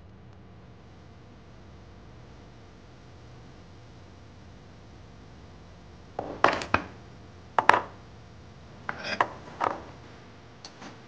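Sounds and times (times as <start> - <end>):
metal ingots knocking on wooden table: 6.2 - 7.0, 7.6 - 8.0.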